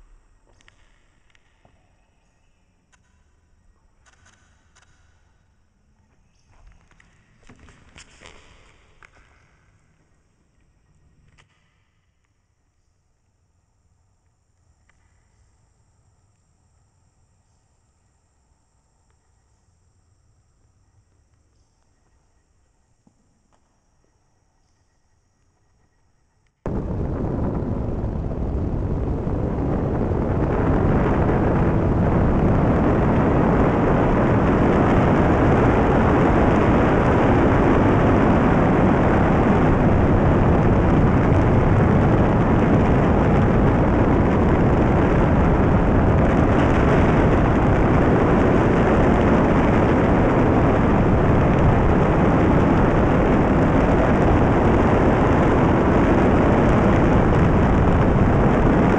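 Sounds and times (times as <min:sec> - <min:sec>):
wind buffeting microphone: 0:26.7 - 0:58.9.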